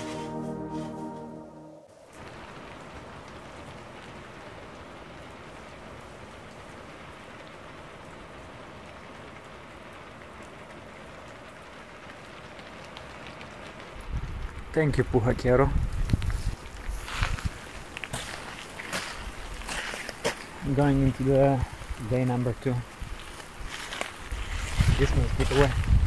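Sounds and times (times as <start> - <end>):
background music: 0.0 - 1.9
rain falling steadily: 0.0 - 26.0.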